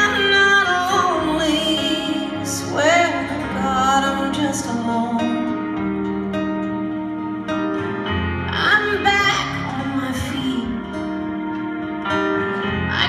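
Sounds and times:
woman singing: 0.0s - 5.8s, 8.5s - 11.3s
instrumental accompaniment: 0.0s - 13.0s.

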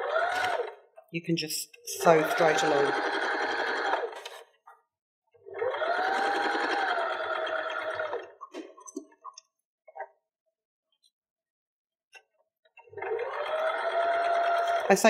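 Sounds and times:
sewing machine motor whine: 0.0s - 0.8s, 1.9s - 4.2s, 5.4s - 8.4s, 12.9s - 15.0s.

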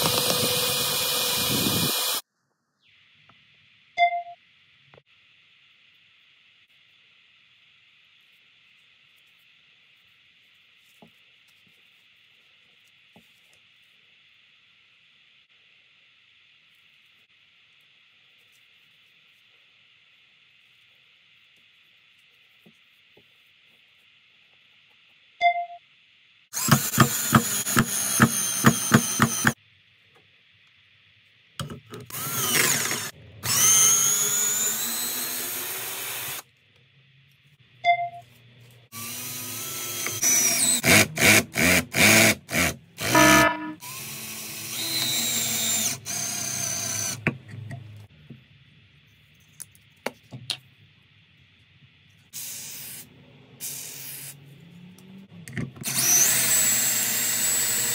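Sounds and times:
cordless drill driving screws: 0.0s - 2.2s, 26.6s - 29.6s, 32.1s - 36.4s, 39.0s - 47.2s, 55.8s - 57.9s.

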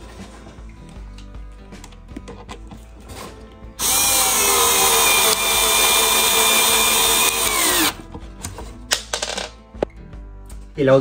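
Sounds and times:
electric screwdriver motor whining: 3.8s - 8.0s.

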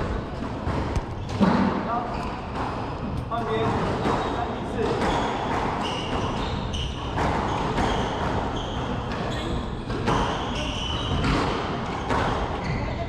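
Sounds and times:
squash ball hitting rackets and walls: 0.0s - 12.9s
shoe squeaks: 1.0s - 13.0s.

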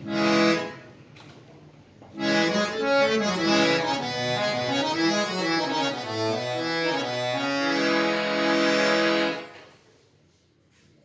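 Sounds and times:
harmonium playing: 0.0s - 0.9s, 2.2s - 9.6s.

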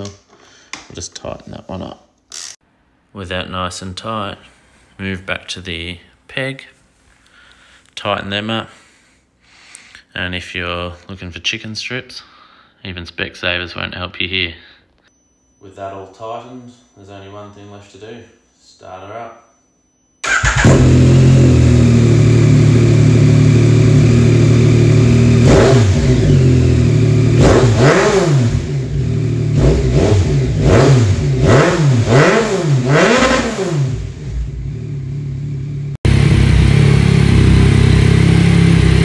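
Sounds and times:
motorcycle engine idling and revving: 20.3s - 39.0s.

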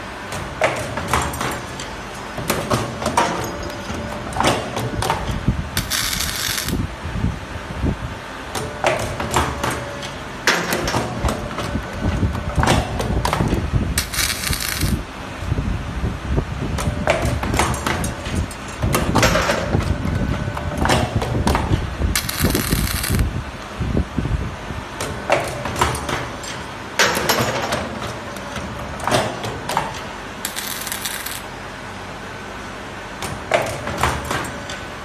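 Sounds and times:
machine tools clanking: 1.0s - 6.8s
machine rumble: 1.3s - 8.2s, 11.3s - 24.9s, 27.8s - 31.9s.

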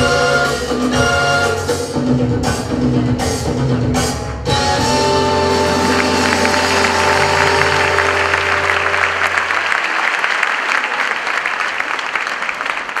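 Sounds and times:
mambo music: 0.0s - 9.7s
audience applauding: 5.5s - 13.0s.

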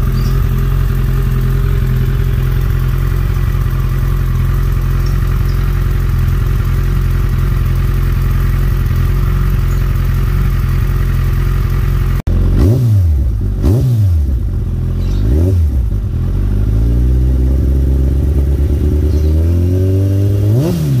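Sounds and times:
motorcycle engine idling: 0.0s - 21.0s
motorcycle throttle revving: 0.0s - 21.0s.

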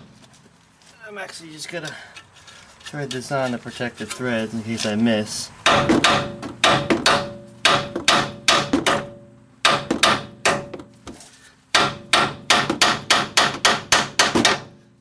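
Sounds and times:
hammer striking metal: 5.6s - 10.9s, 11.7s - 14.8s.

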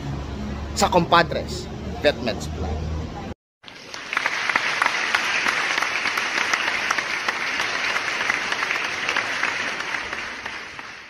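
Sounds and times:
many hands clapping: 3.6s - 11.0s.

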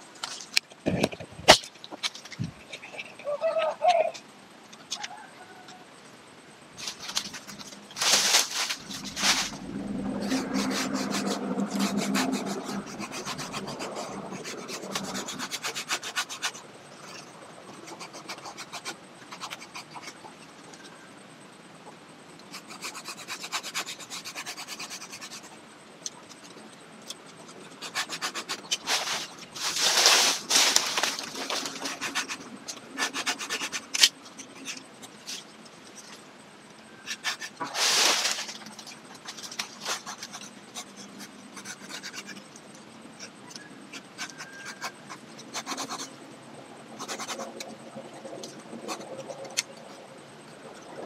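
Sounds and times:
hand saw rasping through branch: 10.2s - 17.2s, 27.8s - 32.4s, 33.0s - 34.8s.

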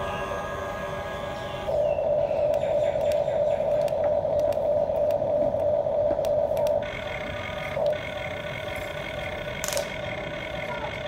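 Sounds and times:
toy motor whining: 0.0s - 1.8s.

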